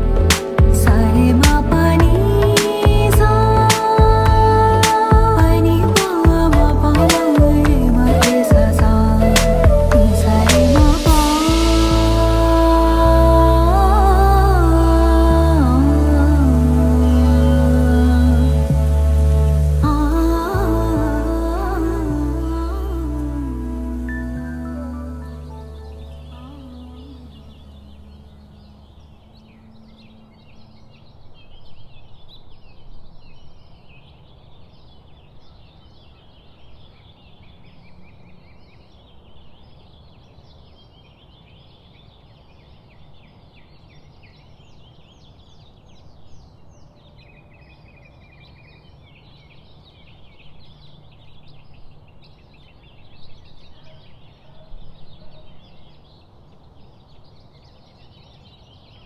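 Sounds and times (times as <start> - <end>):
small birds chirping: 19.7 - 59.0.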